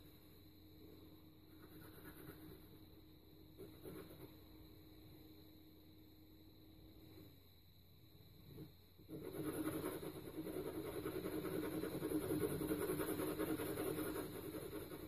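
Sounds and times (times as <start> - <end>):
pencil shading on paper: 9.0 - 15.0.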